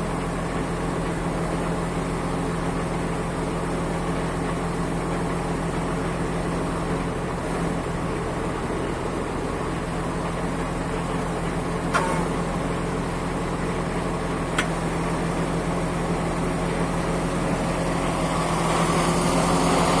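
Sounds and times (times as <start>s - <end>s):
truck engine running: 0.0s - 20.0s.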